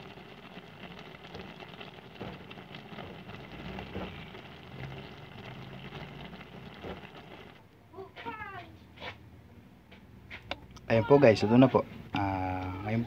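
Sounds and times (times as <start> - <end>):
broth simmering with bubbles popping: 0.0 - 7.6, 12.2 - 13.0.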